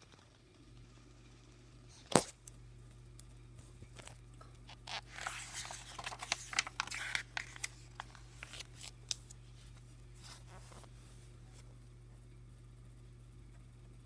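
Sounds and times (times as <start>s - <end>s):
steady low hum: 0.0s - 14.0s
pages rustling and turning: 3.9s - 11.7s.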